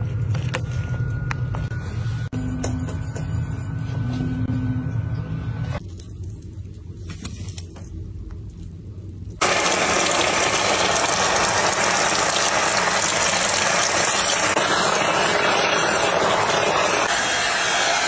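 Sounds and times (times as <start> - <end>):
shower water spraying: 9.4 - 18.0.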